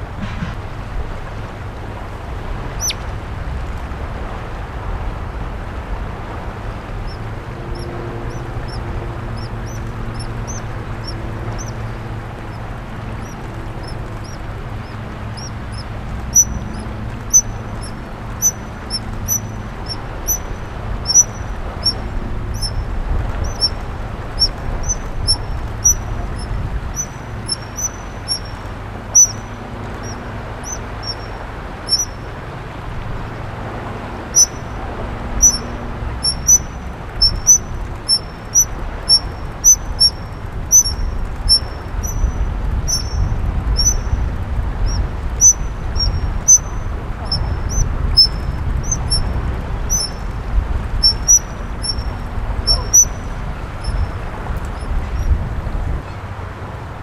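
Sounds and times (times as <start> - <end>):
river rushing: 0.0 - 57.0
otters squeaking: 2.7 - 3.0, 7.0 - 32.2, 34.3 - 34.8, 35.4 - 44.1, 44.8 - 50.3, 51.0 - 54.1.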